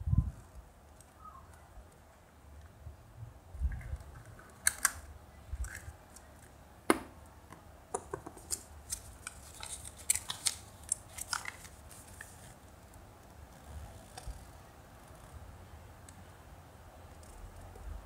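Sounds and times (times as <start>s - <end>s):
paper and plastic crinkling: 8.4s - 12.6s.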